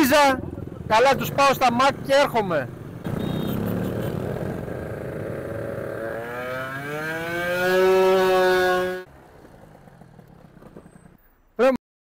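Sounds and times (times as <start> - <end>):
small motorcycle engine accelerating: 3.0 - 11.2.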